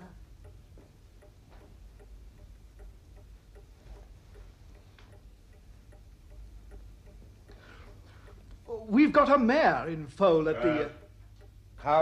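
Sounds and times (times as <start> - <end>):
clock ticking: 0.0 - 12.0
low room hum: 0.0 - 12.0.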